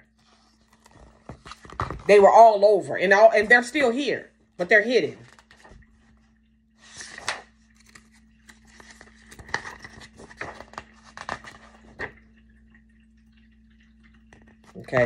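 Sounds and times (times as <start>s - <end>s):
book pages turning: 0.0s - 2.4s, 5.2s - 12.2s.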